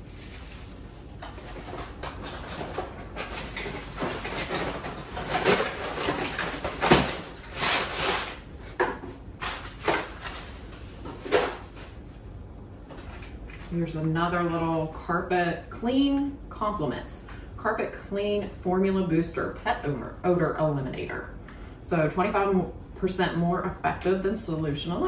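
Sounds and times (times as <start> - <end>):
cardboard rustling and scraping: 0.0 - 12.2.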